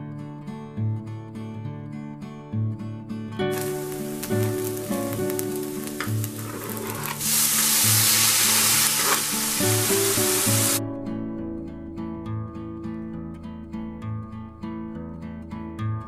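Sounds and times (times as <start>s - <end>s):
onion sizzling in hot oil: 3.5s - 10.8s
tomato sliding into a pan: 3.5s - 10.8s.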